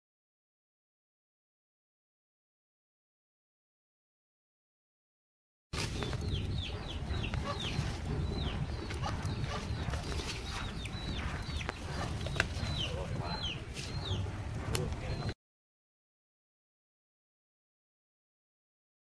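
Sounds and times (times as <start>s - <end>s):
birds chirping: 5.8s - 15.4s
steady low rumble: 5.8s - 15.4s.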